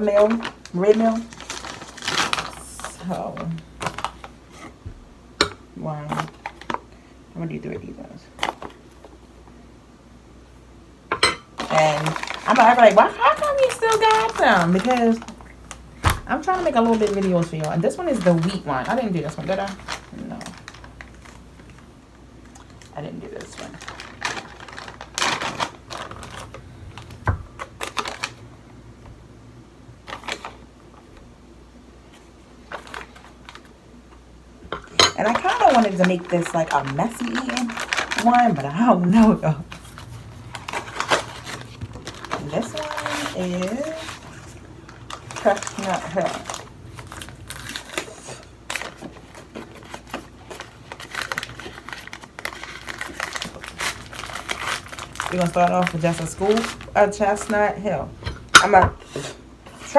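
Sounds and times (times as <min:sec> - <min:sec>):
plastic bag crinkling: 0:00.0 - 0:04.7, 0:11.6 - 0:28.5, 0:30.0 - 0:30.6, 0:32.2 - 0:33.7, 0:35.2 - 0:58.1.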